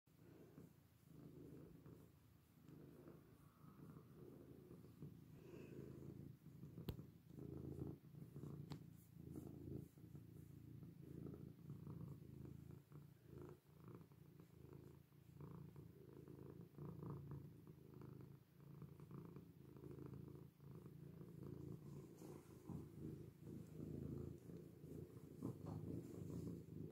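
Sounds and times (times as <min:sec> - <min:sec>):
cat purring: 0:00.1 - 0:26.9.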